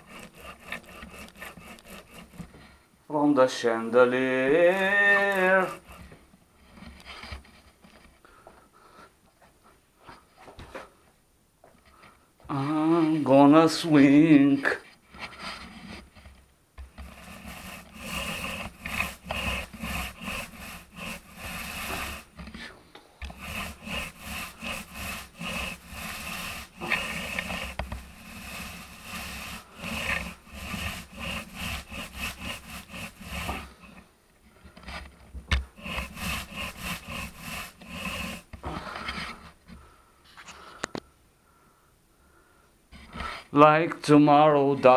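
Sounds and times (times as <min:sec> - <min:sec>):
paint roller rubbing on ceiling: 0:00.0 - 0:02.8, 0:03.8 - 0:07.6, 0:16.8 - 0:39.6.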